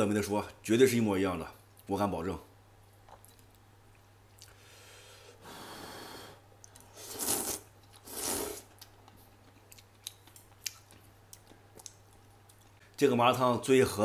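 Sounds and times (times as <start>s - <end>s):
person slurping noodles: 6.9s - 8.7s
chewing clicks: 8.7s - 12.8s.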